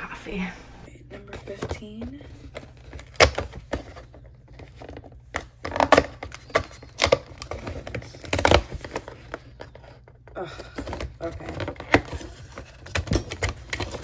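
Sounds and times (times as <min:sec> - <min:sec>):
cardboard tearing and cracking: 0:02.5 - 0:09.7, 0:10.9 - 0:14.0.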